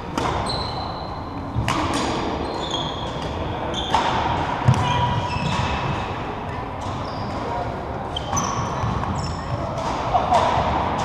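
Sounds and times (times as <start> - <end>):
racket hitting shuttlecock: 0.0 - 0.5, 1.6 - 2.4, 3.0 - 7.5, 8.2 - 11.0
shoe squeaks: 0.3 - 1.6, 2.4 - 4.1, 4.7 - 6.2, 6.8 - 9.8.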